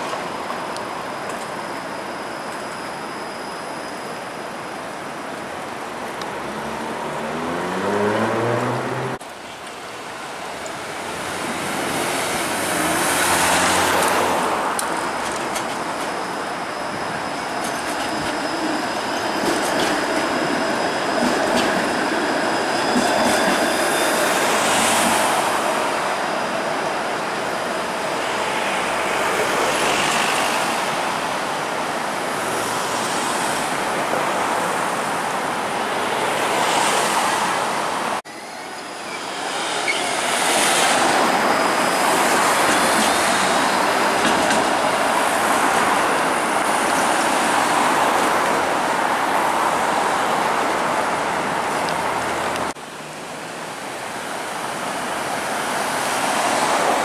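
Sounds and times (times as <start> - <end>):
streetcar passing: 0.0 - 57.0
cars and trucks passing: 5.9 - 9.3, 10.8 - 16.6.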